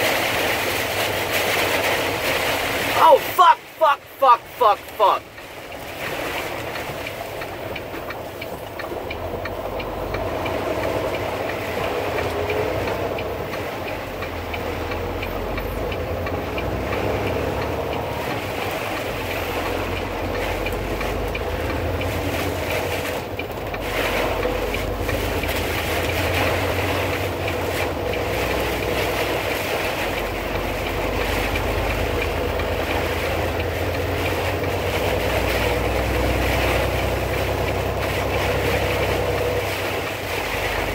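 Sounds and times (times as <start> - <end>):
tyres on wet pavement: 0.0 - 40.9
vehicle engine: 0.0 - 40.9.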